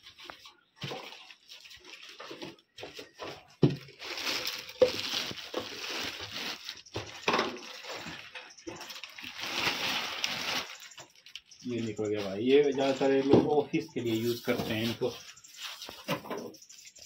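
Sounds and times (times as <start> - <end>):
plastic wrapping crinkling: 0.0 - 13.3.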